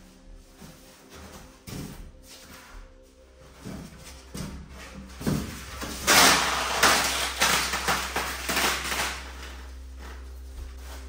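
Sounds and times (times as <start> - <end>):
plastic wrap rustling: 4.2 - 11.0.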